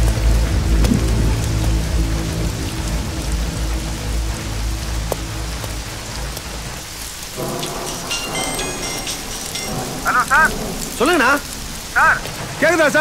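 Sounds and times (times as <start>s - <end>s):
low rumble: 0.0s - 12.7s
heavy rain pouring: 0.0s - 13.0s
man calling out: 12.0s - 13.0s.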